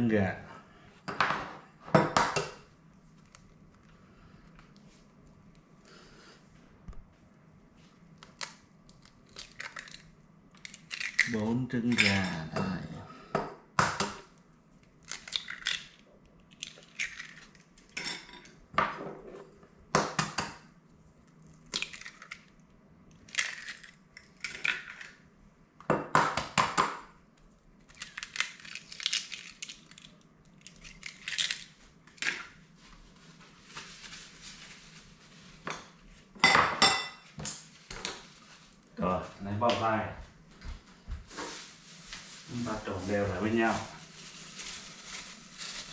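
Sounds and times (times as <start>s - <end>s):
eggs cracking against bowl: 8.2s - 12.3s, 14.9s - 18.0s, 21.5s - 25.2s, 27.8s - 32.5s.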